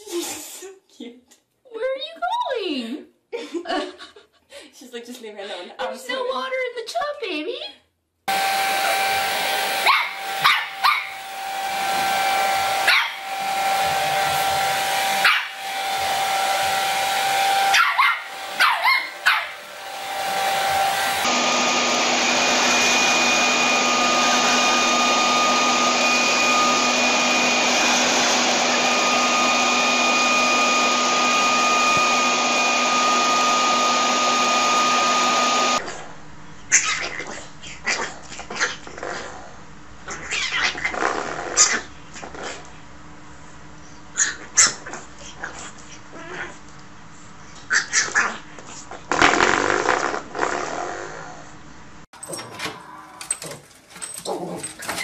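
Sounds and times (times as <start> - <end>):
hair dryer blowing: 8.3 - 35.8
leaf blower running: 8.3 - 35.8
puppy barking and yapping: 9.6 - 11.3, 11.9 - 13.8, 14.8 - 16.8, 17.4 - 19.7, 36.7 - 38.8, 44.2 - 46.5, 47.7 - 48.4.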